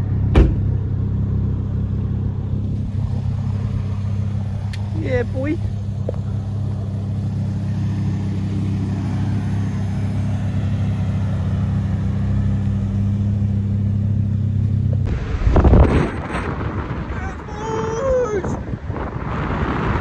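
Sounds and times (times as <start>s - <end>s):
car engine low drone: 0.0s - 20.0s
wind buffeting microphone: 15.0s - 20.0s.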